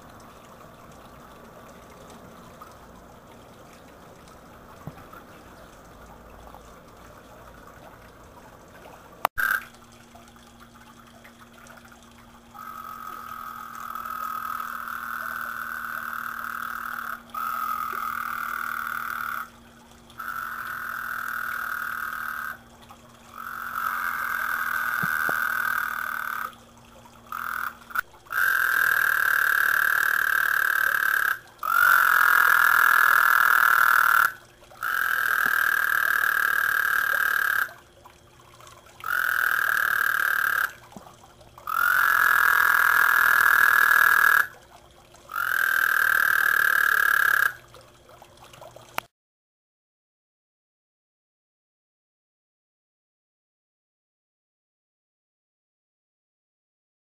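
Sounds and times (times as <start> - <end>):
water trickling over waterfall: 0.0 - 49.1
toads trilling: 12.6 - 19.6, 20.2 - 22.6, 23.3 - 26.5, 27.3 - 37.8, 39.0 - 40.8, 41.6 - 44.5, 45.3 - 47.6.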